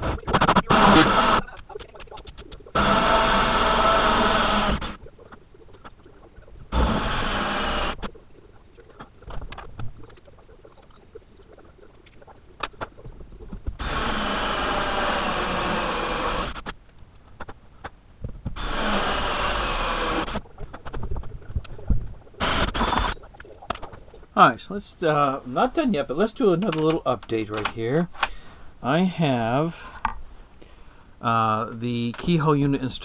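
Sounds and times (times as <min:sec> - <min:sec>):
clicks and handling noises: 0:00.0 - 0:02.7, 0:26.4 - 0:28.4
cordless drill boring: 0:02.8 - 0:04.9, 0:06.8 - 0:08.0, 0:13.8 - 0:16.6, 0:18.6 - 0:20.4.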